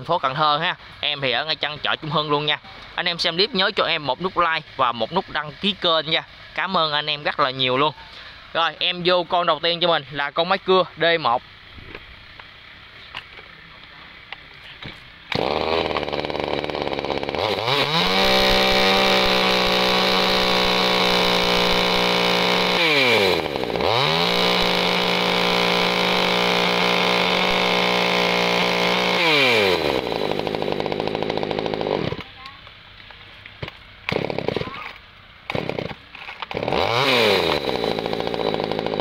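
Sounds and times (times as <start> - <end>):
chainsaw starting and revving: 15.3 - 32.4, 34.0 - 39.0.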